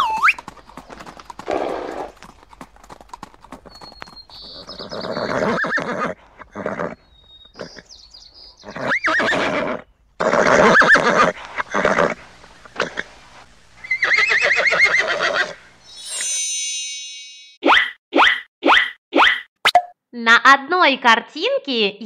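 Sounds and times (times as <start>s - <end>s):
horses neighing: 0.0s - 8.0s, 8.6s - 15.7s.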